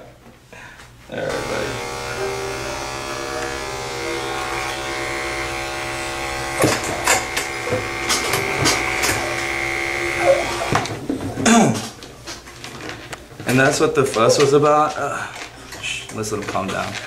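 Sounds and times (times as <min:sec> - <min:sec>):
electric clipper humming: 0:01.2 - 0:11.0
sharp clicks and knocks: 0:06.5 - 0:09.6.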